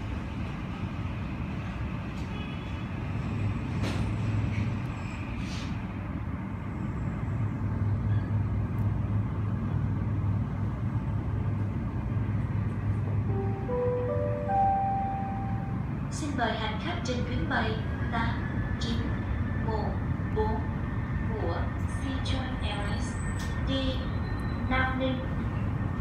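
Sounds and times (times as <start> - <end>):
public-address chime: 13.3 - 15.9.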